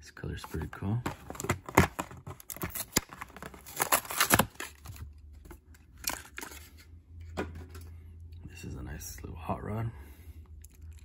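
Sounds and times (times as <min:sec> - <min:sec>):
cardboard ripping: 0:01.1 - 0:05.0.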